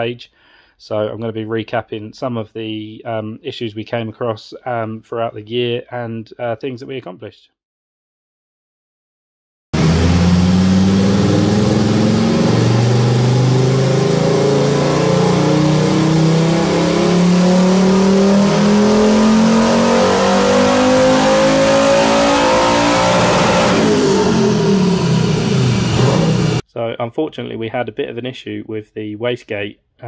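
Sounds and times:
car engine revving on dyno: 9.8s - 26.6s.

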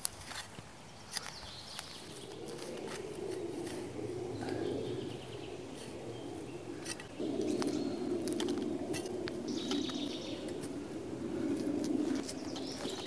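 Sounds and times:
shovel scraping soil: 0.0s - 4.6s, 8.2s - 9.4s
birds chirping: 0.9s - 13.0s
low steady drone: 2.0s - 13.0s.

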